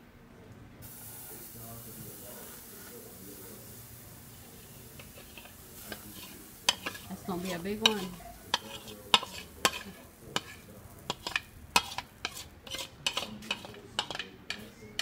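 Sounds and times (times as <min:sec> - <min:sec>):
batter sizzling in a pan: 0:00.8 - 0:15.0
metal spoon scraping a bowl: 0:05.0 - 0:15.0.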